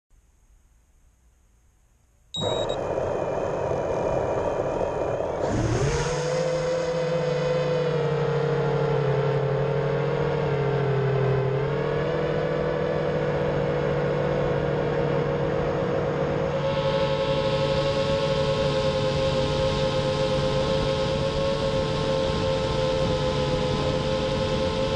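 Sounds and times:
drone motors whining: 2.4s - 10.3s.

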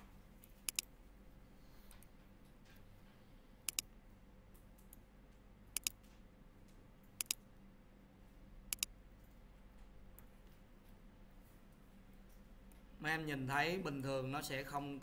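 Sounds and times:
faint electrical hum: 0.0s - 15.0s
computer mouse clicking: 0.4s - 0.9s, 3.6s - 3.9s, 5.7s - 7.4s, 8.7s - 8.9s.

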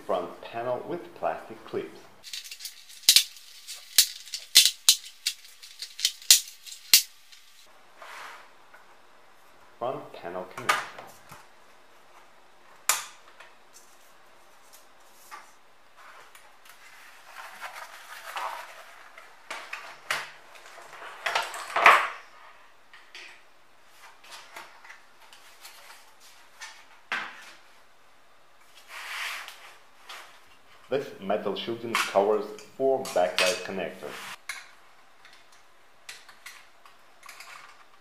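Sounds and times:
plastic panels scraping and rattling: 2.3s - 7.0s.

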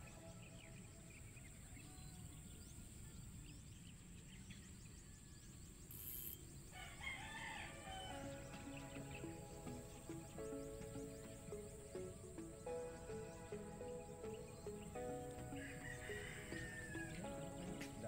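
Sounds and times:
faint steady background noise: 0.0s - 18.0s
rooster crowing: 6.7s - 8.3s, 15.5s - 17.5s.

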